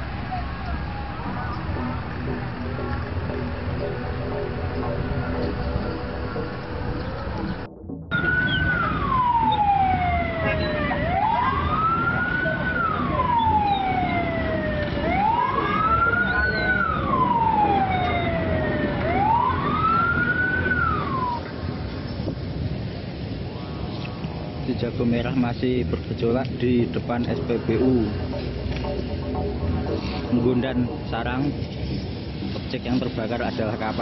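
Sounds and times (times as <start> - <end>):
siren wailing: 0.0 - 21.5, 27.3 - 31.2
background noise: 0.0 - 34.0.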